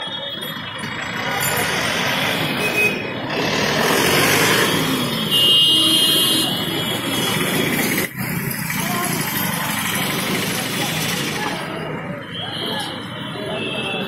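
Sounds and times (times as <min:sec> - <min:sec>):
motorcycles and cars passing: 0:00.6 - 0:12.2
high-pitched vehicle horn: 0:05.1 - 0:07.8.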